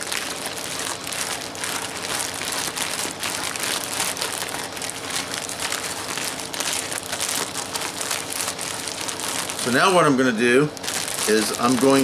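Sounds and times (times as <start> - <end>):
plastic bag crinkling: 0.0 - 12.0
water sloshing in a bag: 10.7 - 12.0.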